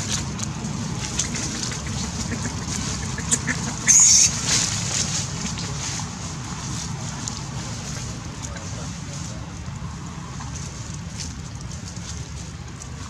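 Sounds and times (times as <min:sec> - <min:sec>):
monkey screaming: 0:03.5 - 0:04.4.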